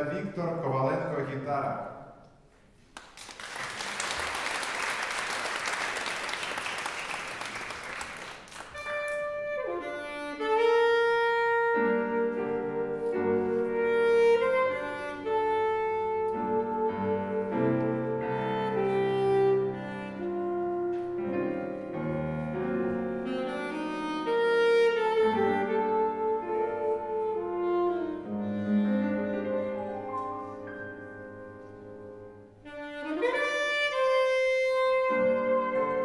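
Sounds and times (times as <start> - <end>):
audience applauding: 2.9 - 9.2
jazz big band playing: 8.6 - 31.0, 32.6 - 36.0.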